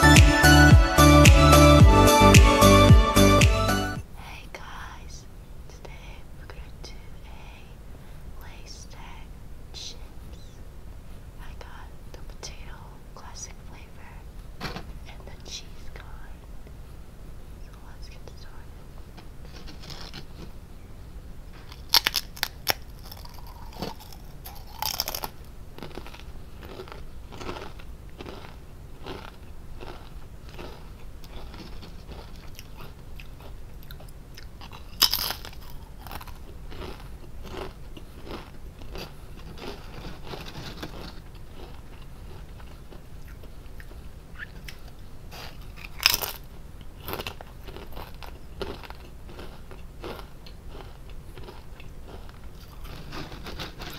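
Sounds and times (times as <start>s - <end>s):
quiet chewing crunches: 18.5s - 20.6s, 21.5s - 53.9s
potato chips crunching: 19.5s - 20.5s, 21.6s - 44.0s, 44.6s - 53.9s.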